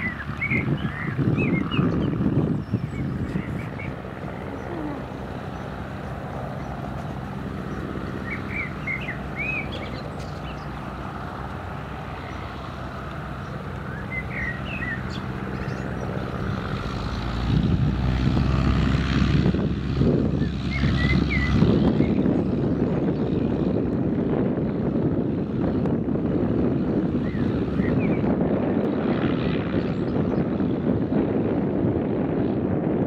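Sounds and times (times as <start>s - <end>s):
birds chirping: 0.0s - 17.5s, 20.3s - 23.6s, 25.8s - 28.4s
propeller aircraft engine: 0.0s - 33.0s.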